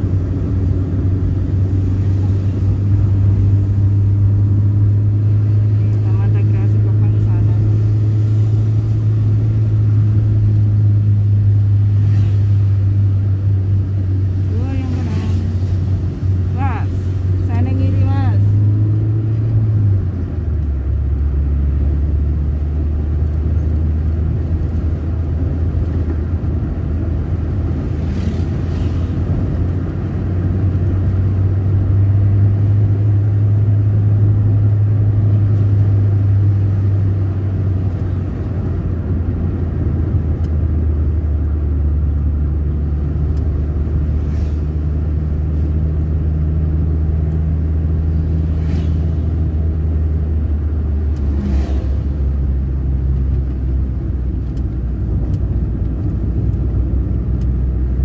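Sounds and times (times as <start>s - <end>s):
car engine and road noise: 0.0s - 58.0s.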